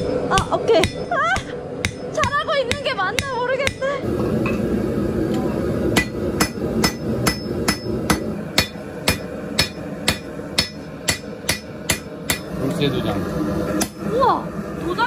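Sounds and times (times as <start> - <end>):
hammer striking metal on anvil: 0.0 - 3.9, 6.0 - 12.5.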